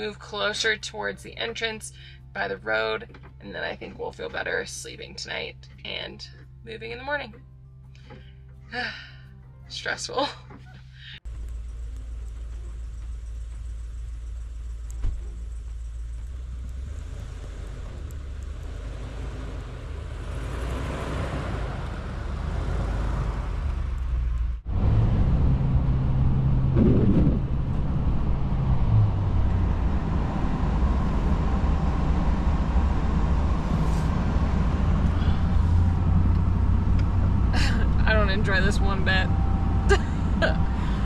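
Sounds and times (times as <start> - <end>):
pickup truck engine running: 9.8 - 41.0
engine revving: 11.2 - 41.0.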